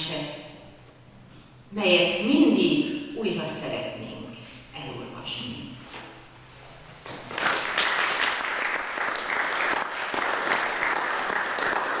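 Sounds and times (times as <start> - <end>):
audience applause: 7.3 - 12.0.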